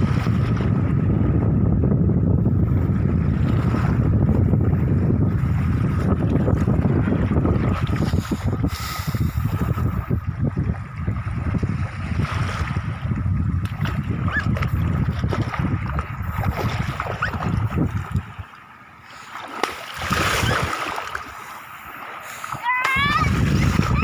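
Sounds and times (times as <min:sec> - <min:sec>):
wind buffeting microphone: 0:00.0 - 0:18.6, 0:19.9 - 0:21.5, 0:22.4 - 0:24.0
small waves lapping: 0:03.0 - 0:24.0
shallow water splash: 0:10.5 - 0:24.0.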